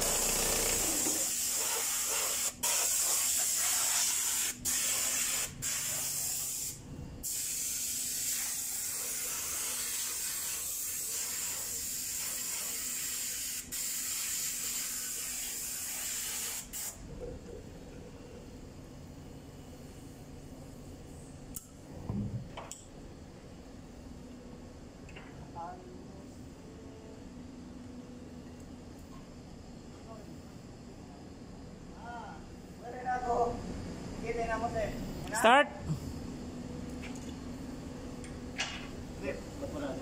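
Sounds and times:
spray hiss: 0:00.0 - 0:17.0.

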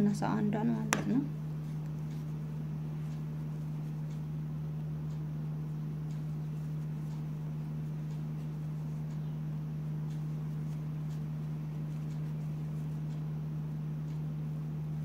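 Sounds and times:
steady low hum: 0:00.0 - 0:15.0
crochet hook ticking: 0:06.0 - 0:09.4, 0:10.0 - 0:13.2.

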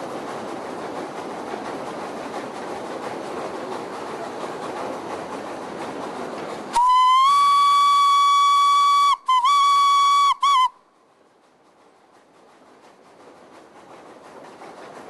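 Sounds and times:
train rumbling on track: 0:00.0 - 0:15.0
locomotive whistle: 0:06.7 - 0:10.8.

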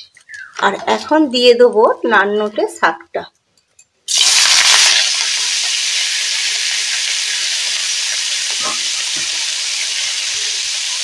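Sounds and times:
leaves sizzling in hot oil: 0:04.1 - 0:11.0.

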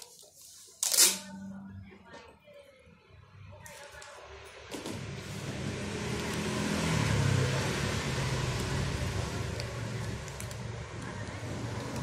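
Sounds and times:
vehicle engine passing by: 0:04.6 - 0:12.0.

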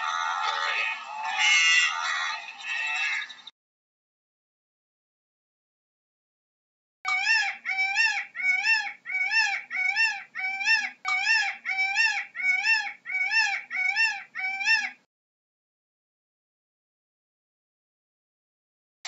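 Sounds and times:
peacock calling: 0:00.0 - 0:03.5, 0:07.1 - 0:15.1.

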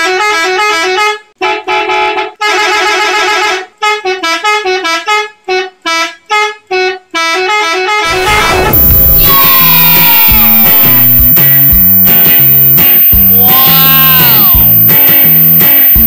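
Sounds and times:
buzzy two-note horn melody: 0:07.6 - 0:16.0.

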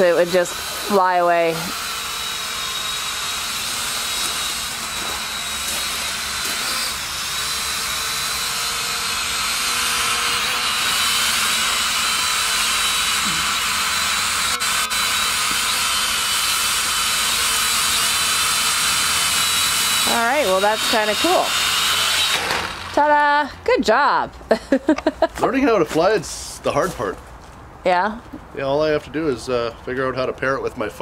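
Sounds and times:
drone propellers buzzing: 0:00.0 - 0:23.4.

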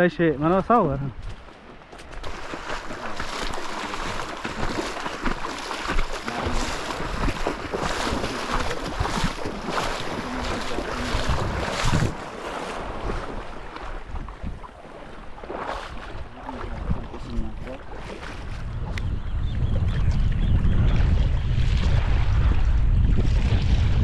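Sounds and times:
footsteps splashing in water: 0:00.4 - 0:19.1
wind on microphone: 0:02.2 - 0:24.0.

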